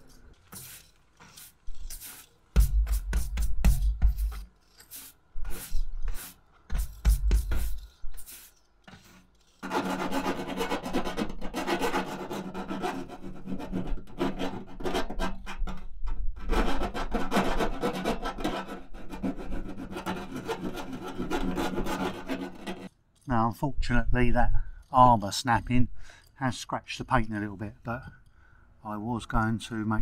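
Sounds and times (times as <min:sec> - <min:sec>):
hand file rasping on sheet metal: 0:00.0 - 0:15.8, 0:16.4 - 0:23.0.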